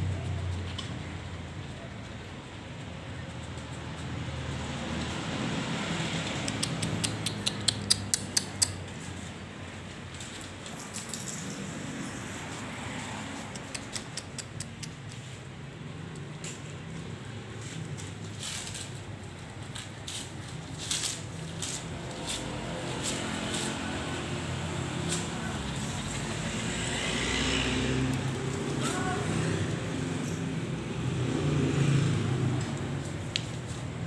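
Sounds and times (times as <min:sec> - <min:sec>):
sharp clicks: 0:06.2 - 0:08.9, 0:13.4 - 0:15.2.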